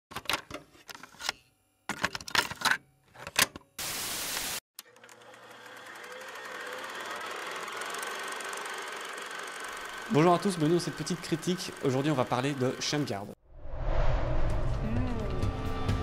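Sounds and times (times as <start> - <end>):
tv static hiss: 3.8 - 4.6.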